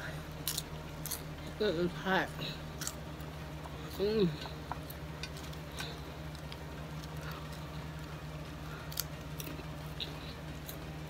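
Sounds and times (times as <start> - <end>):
steady low hum: 0.0 - 11.0
person chewing crunchy chip: 0.4 - 1.3, 2.6 - 3.8, 4.6 - 11.0.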